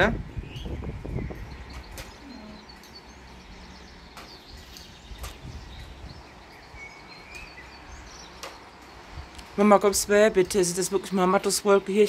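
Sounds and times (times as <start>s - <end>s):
faint bird chirps: 0.4s - 9.4s.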